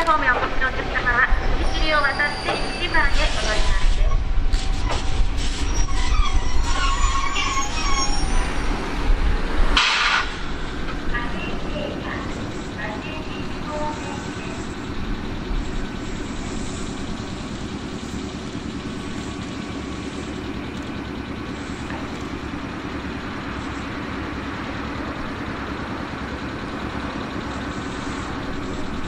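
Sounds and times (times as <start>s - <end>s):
electric train hum and rumble: 0.0s - 29.0s.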